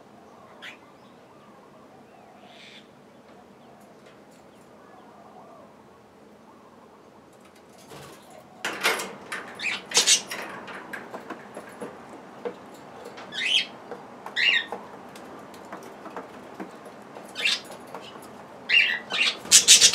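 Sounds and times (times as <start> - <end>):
budgerigars chirping: 18.7 - 19.9.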